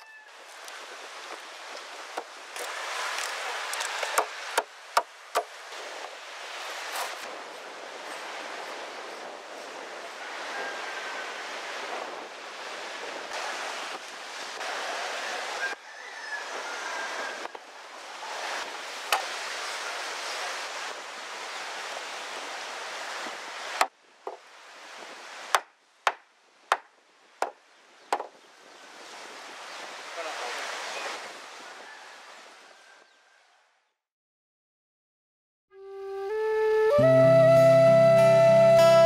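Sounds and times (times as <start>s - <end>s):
wind: 0.0s - 34.0s, 35.7s - 39.0s
surf: 0.4s - 32.7s, 35.8s - 39.0s
adze striking wood: 25.5s - 28.3s.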